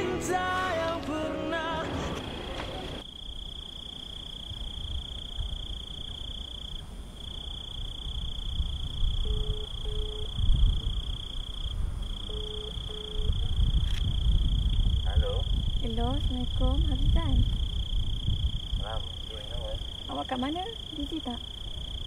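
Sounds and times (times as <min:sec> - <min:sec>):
crickets trilling: 0:01.6 - 0:22.0
phone ringback double beeps: 0:09.2 - 0:10.4, 0:12.2 - 0:13.4
low uneven rumble: 0:13.2 - 0:22.0.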